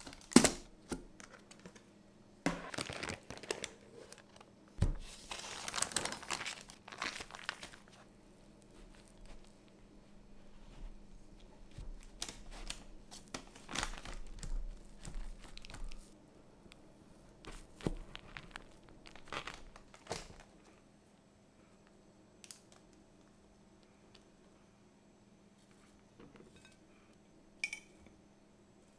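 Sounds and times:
paper crinkling: 2.5 - 9.8, 10.9 - 16.2, 17.4 - 20.8.

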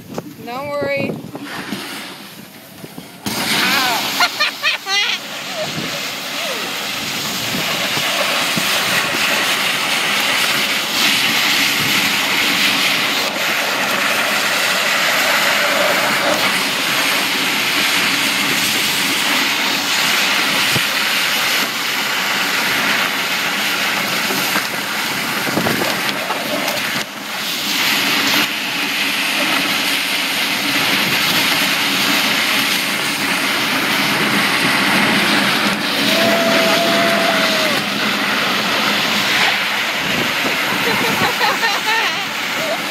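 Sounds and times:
wind: 0.0 - 42.9.

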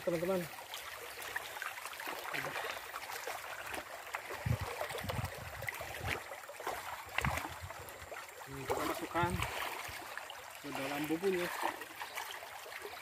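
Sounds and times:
water sloshing and splashing: 0.0 - 13.0
heavy dull splashes: 2.1 - 7.9, 8.6 - 10.1.

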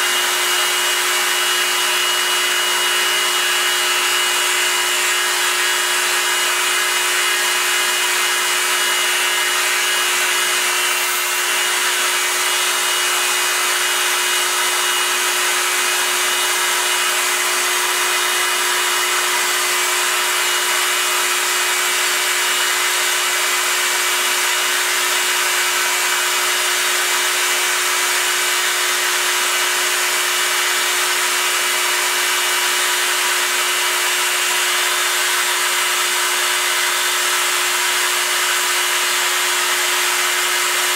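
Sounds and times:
milling machine hum: 0.0 - 22.9.

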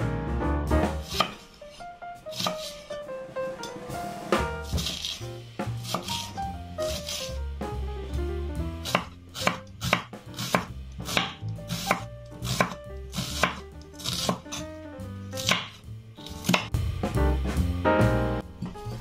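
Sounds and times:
knife chopping on wooden board: 0.9 - 1.4, 2.3 - 2.9, 4.4 - 5.2, 5.8 - 7.2, 8.8 - 14.6, 15.4 - 16.8.

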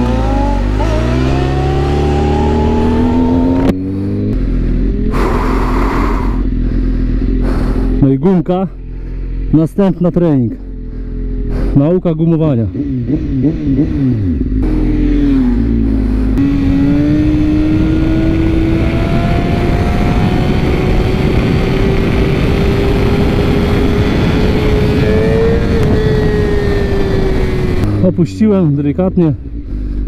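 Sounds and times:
motorcycle engine revving: 0.0 - 9.7, 10.5 - 30.0
wind rush over microphone: 16.4 - 28.0.

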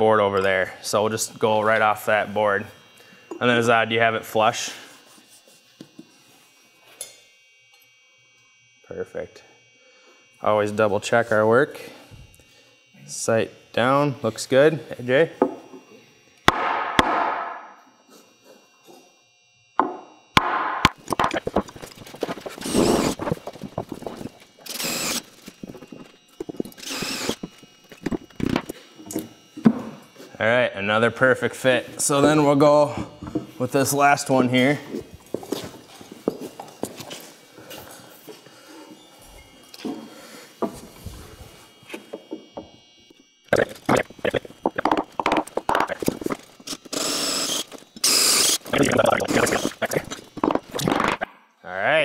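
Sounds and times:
wooden beam knocking on concrete: 19.8 - 20.6
power drill boring through wood: 21.8 - 29.2, 43.7 - 50.9.

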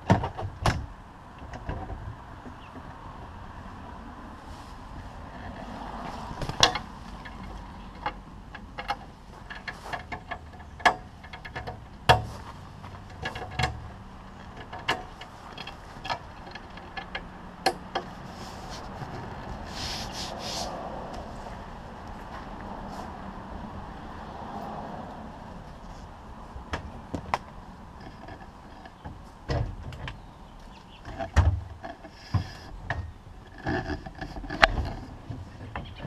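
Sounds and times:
sharp knocks and clicks: 6.4 - 18.2.

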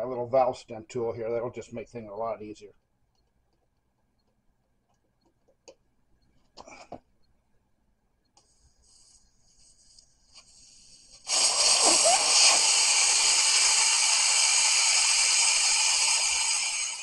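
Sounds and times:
air hissing from tire valve: 8.5 - 17.0.

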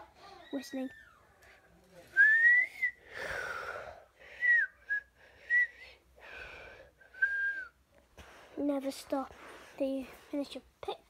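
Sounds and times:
person whistling short notes: 2.2 - 3.0
breathy puffs of air: 2.9 - 7.3.

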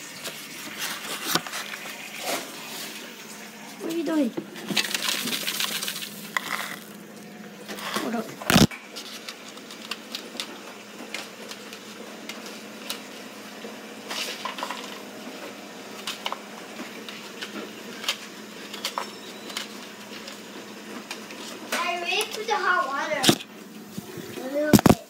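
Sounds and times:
utensils clinking against bowls: 18.0 - 20.4.

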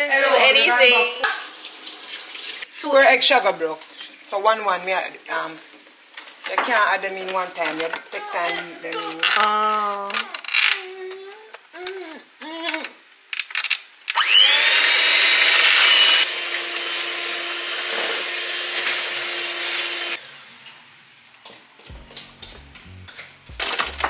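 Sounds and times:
electric mixer motor whine: 14.2 - 20.2.

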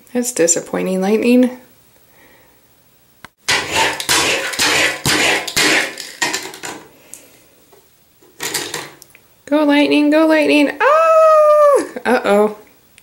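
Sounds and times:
toy car scraping on hard surface: 3.5 - 6.6.

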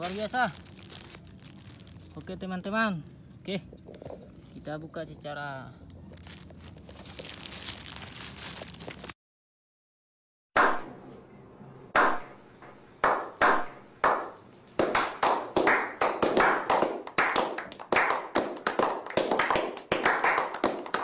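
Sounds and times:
hands clapping: 13.0 - 21.0
small group applauding: 13.0 - 21.0.

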